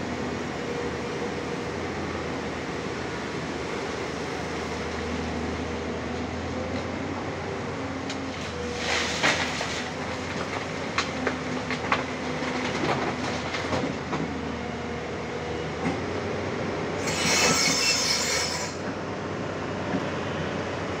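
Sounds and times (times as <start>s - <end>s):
excavator diesel engine drone: 0.0s - 21.0s
hydraulic whine: 17.0s - 18.9s.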